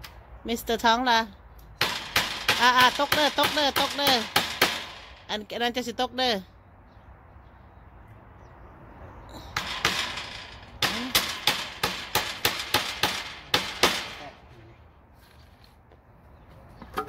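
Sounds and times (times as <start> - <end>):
hammer striking wooden frame: 1.8 - 5.3, 9.6 - 14.4.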